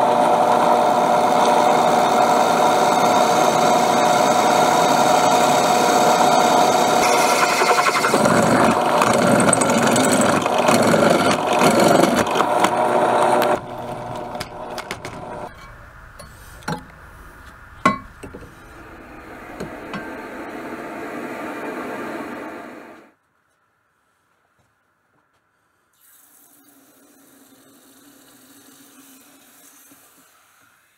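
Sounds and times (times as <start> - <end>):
drill bit grinding steel: 0.0 - 22.9
drill press whining: 0.0 - 23.1.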